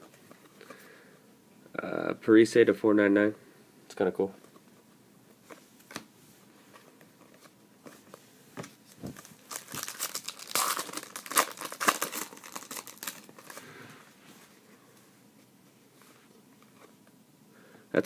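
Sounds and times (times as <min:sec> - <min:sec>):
foil wrapper crinkling: 0:09.2 - 0:13.7.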